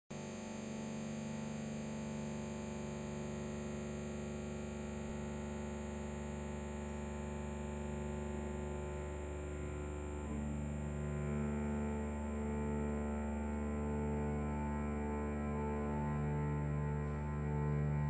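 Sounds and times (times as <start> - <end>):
chamber ensemble holding chord: 9.6 - 18.0.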